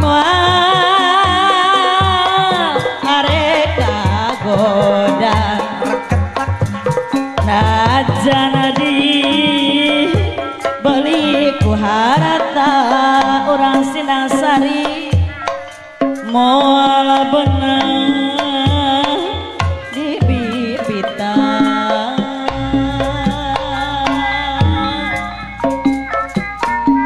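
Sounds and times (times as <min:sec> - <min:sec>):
woman singing: 0:00.0 - 0:15.4, 0:16.2 - 0:26.0
hand drum strokes: 0:22.2 - 0:27.0
bowed string instrument: 0:22.5 - 0:27.0.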